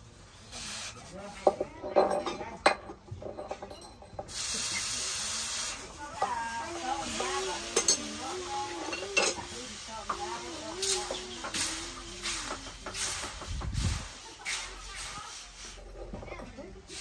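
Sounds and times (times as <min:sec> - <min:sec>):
hot metal hissing in water: 0:00.2 - 0:01.6, 0:04.3 - 0:16.1
metal tongs clinking: 0:07.1 - 0:09.6.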